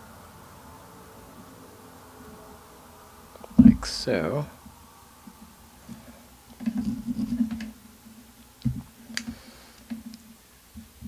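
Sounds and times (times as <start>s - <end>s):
rustling handling noise: 5.2s - 11.0s.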